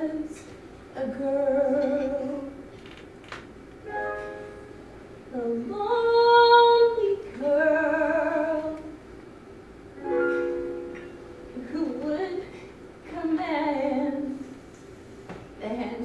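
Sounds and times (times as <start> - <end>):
woman singing slow ballad: 0.0 - 2.7, 5.3 - 9.0, 11.4 - 14.6.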